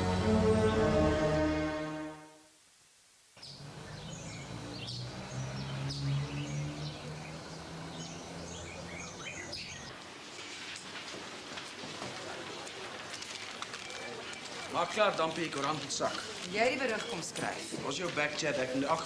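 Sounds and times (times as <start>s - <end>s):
birds chirping: 3.4s - 10.6s, 11.7s - 19.0s.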